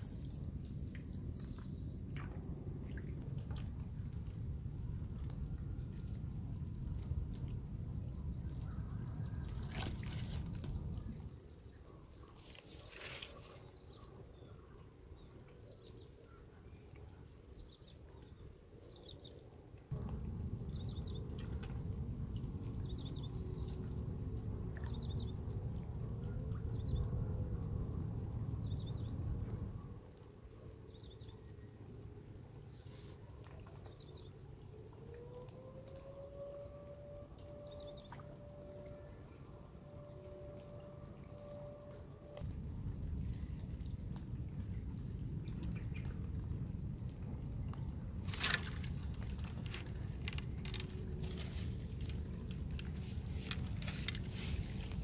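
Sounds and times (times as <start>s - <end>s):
deep rumble: 0.0s - 11.5s, 19.9s - 30.5s, 36.6s - 55.0s
faint bird chirps: 8.0s - 14.8s.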